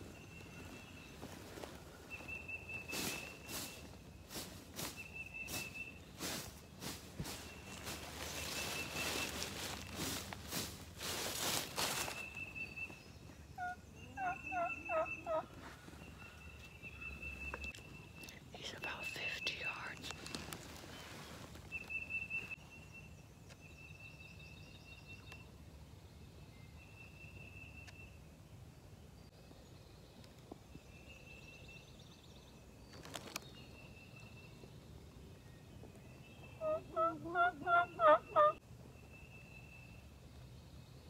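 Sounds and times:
turkey gobbling: 13.6 - 15.5, 36.6 - 38.6.

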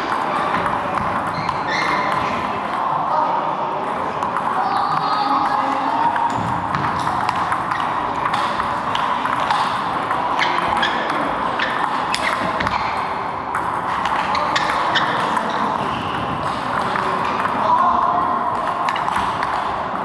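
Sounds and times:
table tennis ball clicking: 4.2 - 12.8, 18.6 - 19.7
distant table tennis ball clicks: 4.2 - 12.9.

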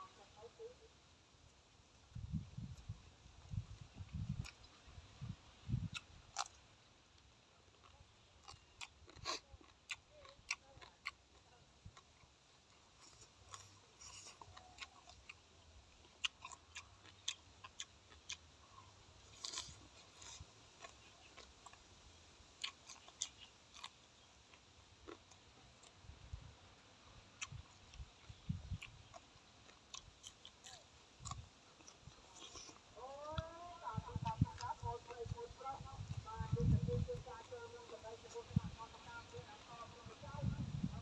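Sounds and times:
person chewing crunchy food: 5.8 - 6.7, 7.7 - 36.3.

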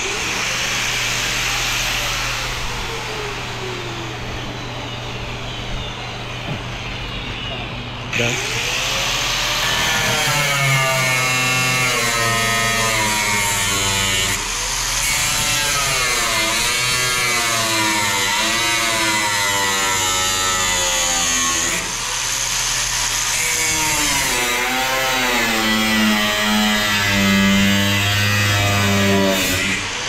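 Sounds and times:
angle grinder cutting metal: 0.0 - 5.0, 8.1 - 30.0.

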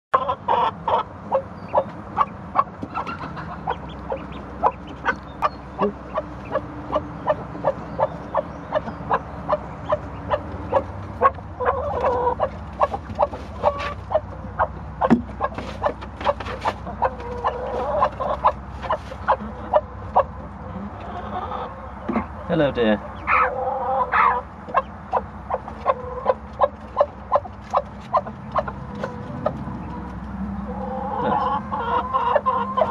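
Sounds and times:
hen clucking: 0.1 - 32.9
hen drawn-out call: 23.2 - 24.5.

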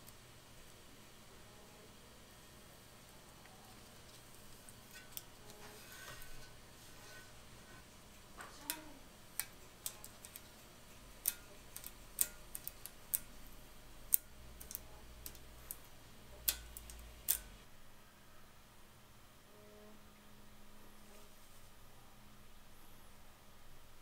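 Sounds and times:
vinyl sheet clicks and crackles: 8.2 - 13.5, 14.1 - 17.6.

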